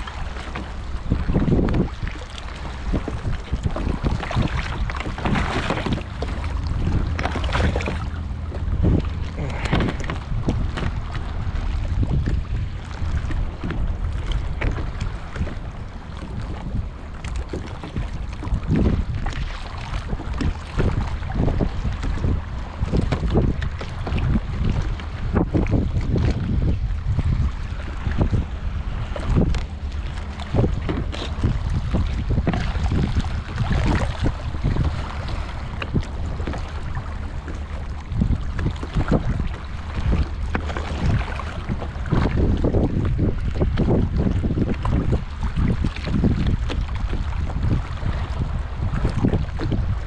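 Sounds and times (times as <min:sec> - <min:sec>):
waves slapping kayak hull: 0:00.0 - 0:50.0
wind buffeting microphone: 0:00.0 - 0:50.0.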